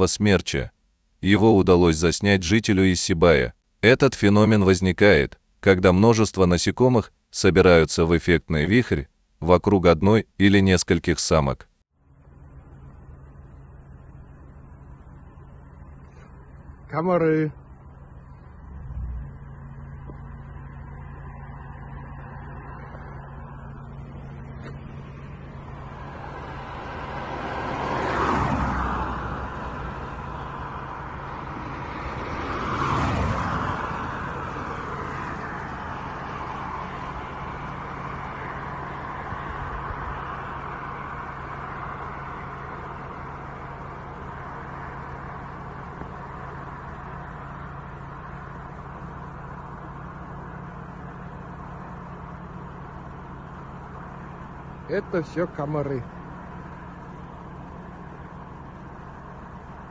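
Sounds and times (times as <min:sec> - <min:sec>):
steady low hum: 0:12.0 - 0:28.3, 0:33.3 - 0:59.9
vehicles passing by: 0:12.0 - 0:59.9.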